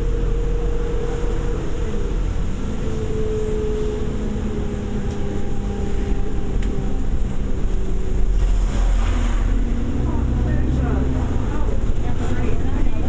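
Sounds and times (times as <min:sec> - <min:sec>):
bus engine droning: 0:00.0 - 0:13.0.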